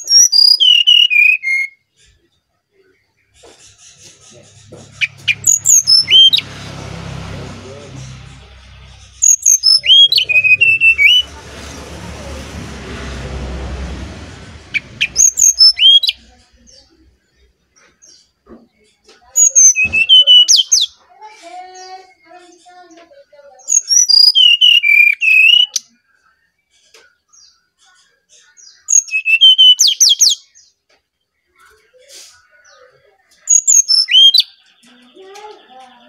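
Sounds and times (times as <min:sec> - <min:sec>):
bird whistling flute-like song: 0:00.0 - 0:01.8, 0:04.9 - 0:06.4, 0:09.2 - 0:11.3, 0:14.7 - 0:16.2, 0:19.4 - 0:20.9, 0:23.7 - 0:25.8, 0:28.9 - 0:30.4, 0:33.5 - 0:34.6.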